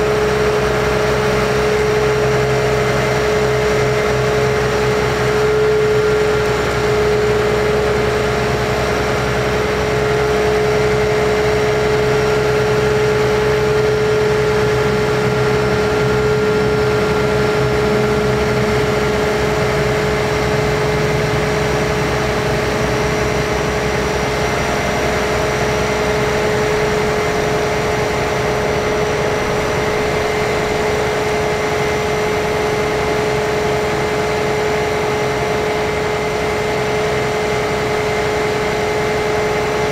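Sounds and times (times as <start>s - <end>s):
diesel engine running: 0.0s - 39.9s
hydraulic whine: 0.0s - 39.9s.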